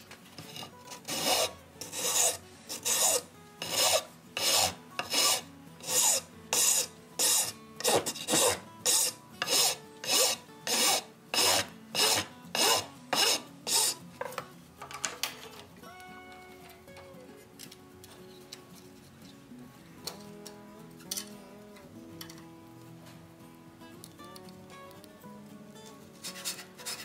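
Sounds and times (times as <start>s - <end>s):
file rasping on wood: 0.4s - 14.0s, 26.2s - 27.0s.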